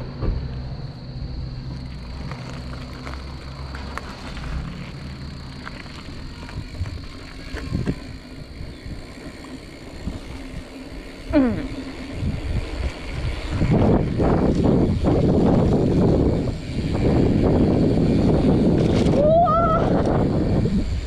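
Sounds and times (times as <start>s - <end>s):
road noise rumble: 0.0s - 21.0s
wind buffeting microphone: 1.8s - 21.0s.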